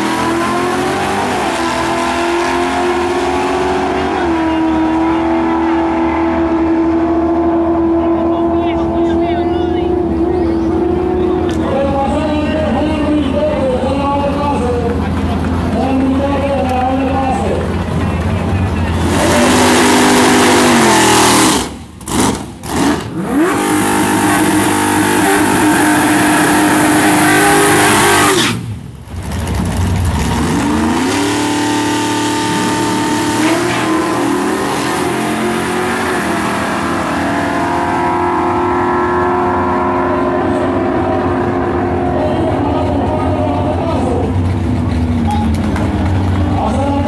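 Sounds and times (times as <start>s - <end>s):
racing car engines revving: 0.0s - 47.0s.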